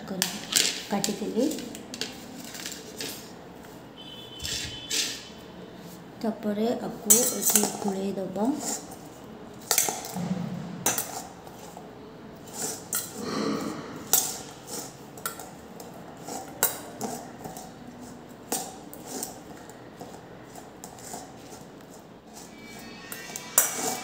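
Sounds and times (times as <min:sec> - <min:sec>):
spoon clinking in metal bowl: 0:07.0 - 0:08.0, 0:22.3 - 0:24.0.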